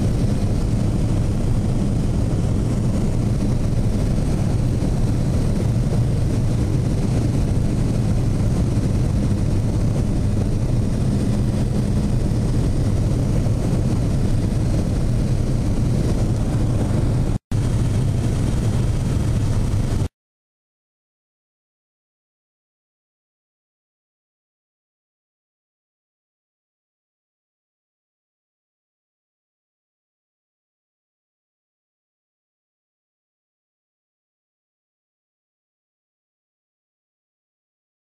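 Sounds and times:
light aircraft engine drone: 0.0s - 20.1s.

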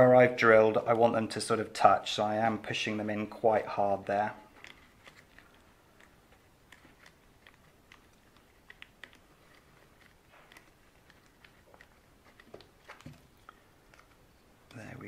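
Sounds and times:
hands shaping plastic clicks: 4.4s - 14.8s.

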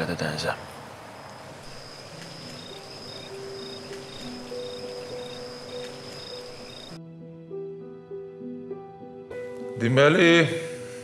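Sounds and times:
cricket chirping: 0.0s - 7.0s
cricket trilling: 0.0s - 7.0s
soft background music: 1.5s - 11.0s.

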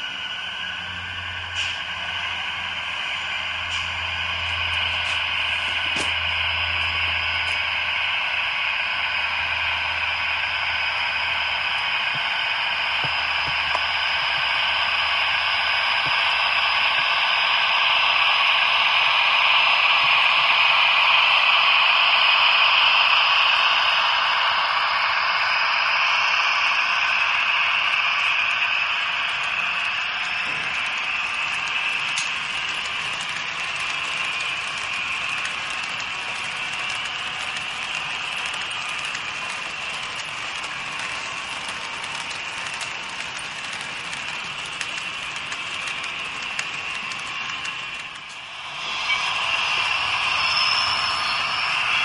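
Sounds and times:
model train engine hum: 0.0s - 52.0s
wagons rattling on rails: 29.0s - 52.0s.

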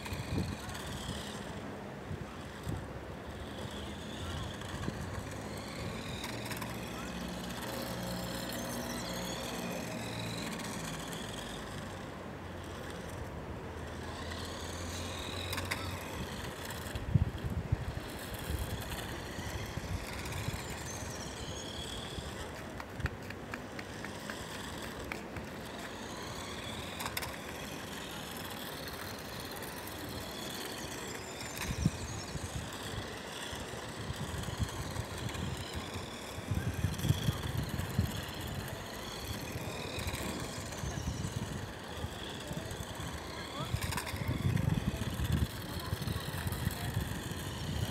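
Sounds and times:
toy car motor whining: 0.0s - 47.9s.

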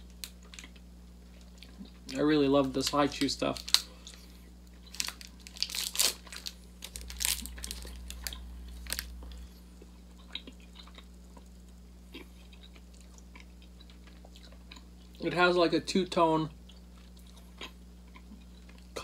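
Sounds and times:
candy wrapper crinkling and tearing: 1.4s - 9.4s.

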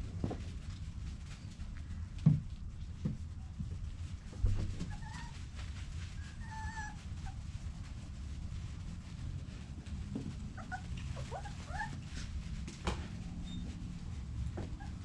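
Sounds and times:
puppy whining: 4.8s - 5.5s, 6.1s - 7.4s, 10.5s - 12.2s, 14.8s - 15.0s.

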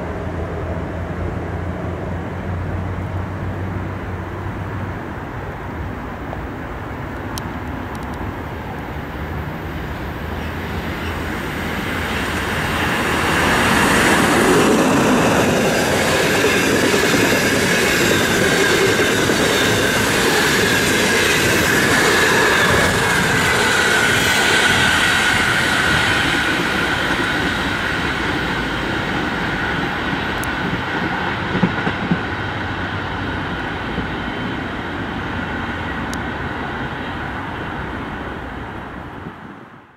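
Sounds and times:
electric locomotive passing: 0.0s - 39.9s
train coaches rolling on rails: 5.8s - 39.4s.

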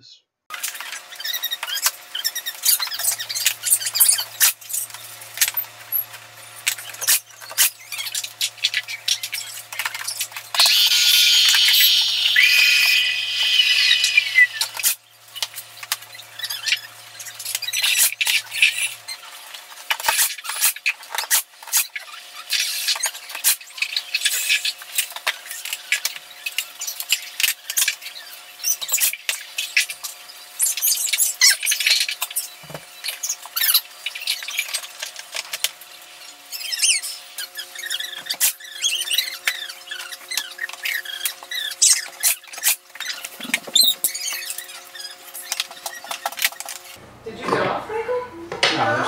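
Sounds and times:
high falling squeal: 10.5s - 14.9s.

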